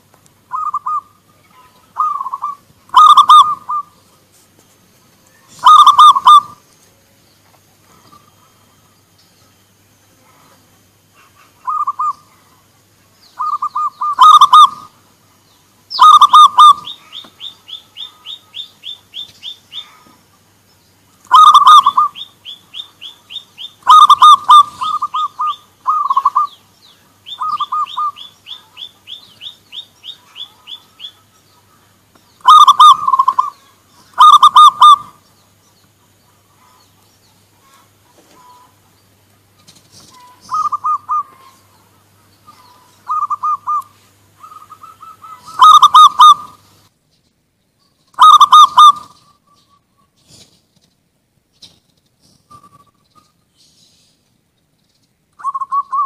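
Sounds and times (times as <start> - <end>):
doves cooing: 0.0 - 4.2, 5.1 - 6.7, 10.2 - 15.1, 15.9 - 20.4, 21.2 - 35.2, 37.6 - 46.6, 48.2 - 50.9, 55.4 - 56.0.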